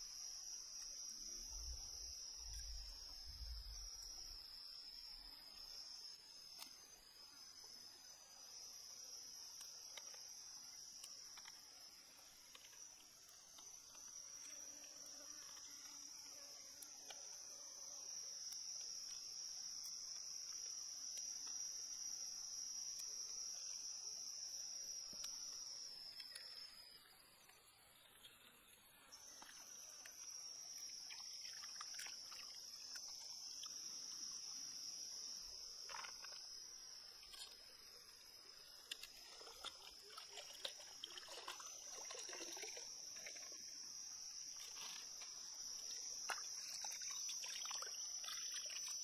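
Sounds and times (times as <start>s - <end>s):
high-pitched insect drone: 0.0s - 49.0s
faint ticks: 0.7s - 4.3s, 9.4s - 34.5s, 35.4s - 43.6s.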